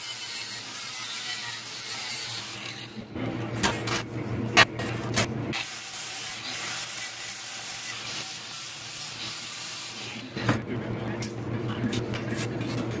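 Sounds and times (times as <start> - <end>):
angle grinder grinding steel: 0.0 - 3.0.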